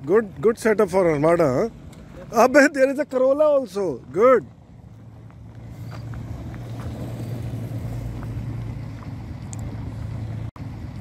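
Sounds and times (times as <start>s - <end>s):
car engine running: 0.0s - 11.0s.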